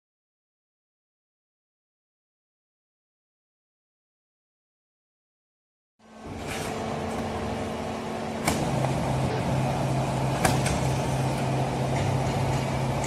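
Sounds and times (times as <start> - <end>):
hydraulic power unit humming: 6.0 - 13.0.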